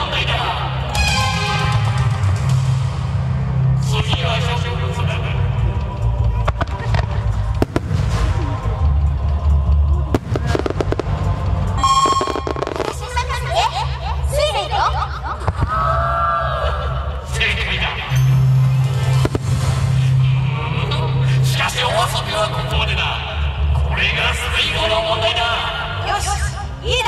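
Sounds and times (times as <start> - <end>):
music: 0.0 - 27.0
fireworks booming: 6.4 - 9.0, 10.1 - 13.3, 19.1 - 20.2
sharp firework cracks: 6.5 - 8.6, 10.2 - 11.3, 11.9 - 13.0, 19.2 - 19.8
firework pops: 10.2 - 11.2.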